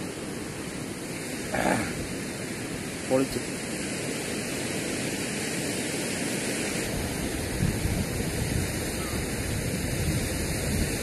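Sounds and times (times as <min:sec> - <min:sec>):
sea surf: 0:00.0 - 0:11.0
wind: 0:00.0 - 0:11.0
wind buffeting microphone: 0:03.6 - 0:11.0.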